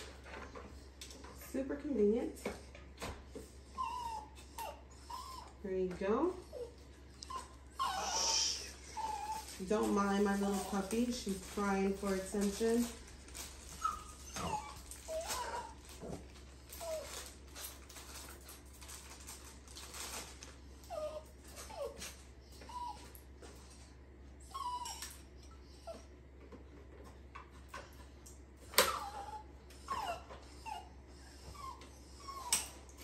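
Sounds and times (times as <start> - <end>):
puppy whimpering and whining: 3.4 - 5.6, 6.3 - 11.2, 13.6 - 17.8, 20.6 - 26.2, 28.6 - 33.0.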